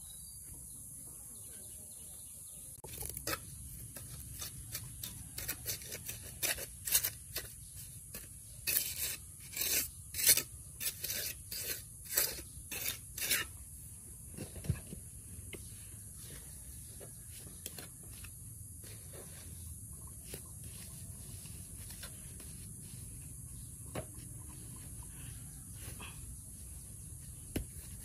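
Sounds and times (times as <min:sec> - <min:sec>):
hand tool scraping rough surface: 0:02.9 - 0:13.7.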